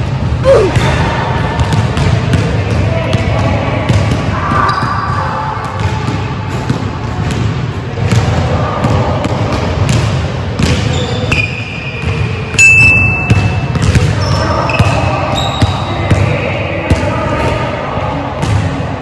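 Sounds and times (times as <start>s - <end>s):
sneaker squeak: 4.5s - 5.2s, 10.6s - 16.2s
basketball bouncing on wooden floor: 13.3s - 14.2s.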